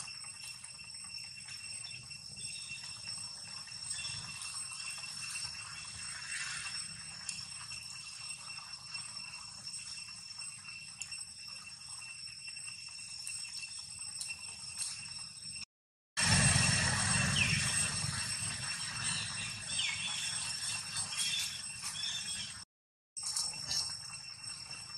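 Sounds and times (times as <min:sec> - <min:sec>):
high-pitched insect drone: 0:00.0 - 0:22.6, 0:23.2 - 0:24.9
low rumble: 0:16.2 - 0:19.4.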